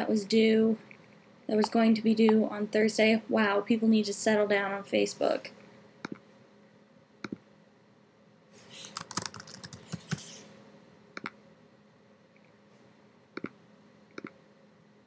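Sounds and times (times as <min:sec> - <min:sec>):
keyboard clicks: 0:08.9 - 0:10.3, 0:11.2 - 0:11.4, 0:14.2 - 0:14.4
typing on a computer keyboard: 0:08.9 - 0:10.3.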